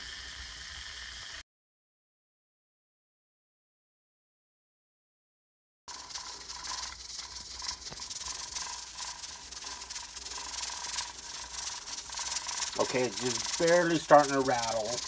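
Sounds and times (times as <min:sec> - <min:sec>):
steam hissing from pressure cooker: 0:00.0 - 0:01.4, 0:05.9 - 0:15.0
pressure cooker weight rattling: 0:05.9 - 0:15.0.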